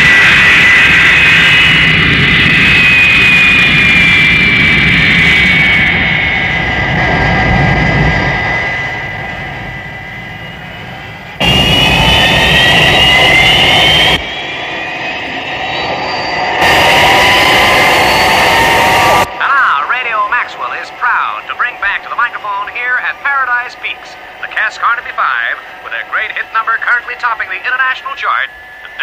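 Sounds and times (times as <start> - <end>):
jet engines whining: 0.0 - 29.0.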